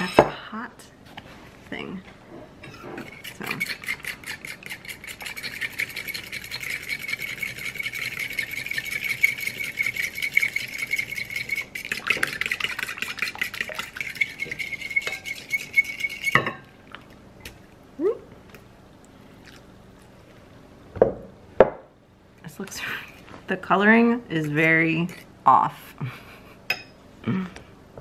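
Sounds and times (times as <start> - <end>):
fork whisking in ceramic bowl: 2.6 - 16.6
water pouring: 5.2 - 15.2.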